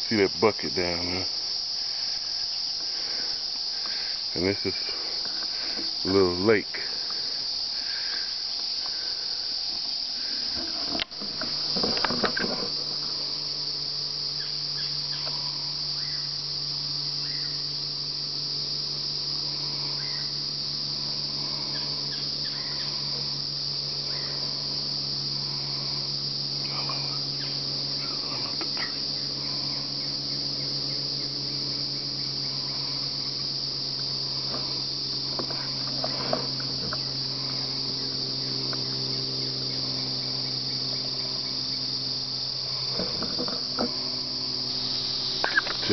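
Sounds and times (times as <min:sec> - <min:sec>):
insects droning: 0:00.0 - 0:45.9
sharp click: 0:45.4 - 0:45.8.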